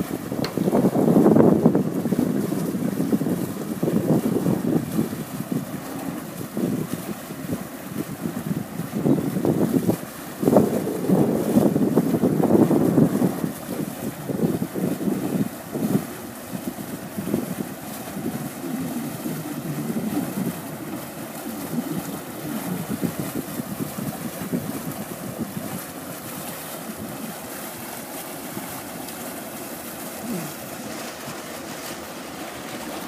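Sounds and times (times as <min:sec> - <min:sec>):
boat engines running: 0:00.0 - 0:33.0
propellers churning water: 0:00.0 - 0:33.0.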